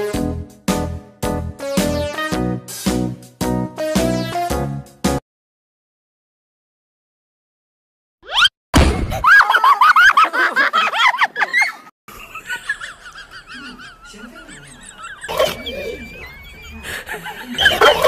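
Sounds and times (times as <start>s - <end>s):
high-pitched shrieking laughter: 13.1s - 18.0s.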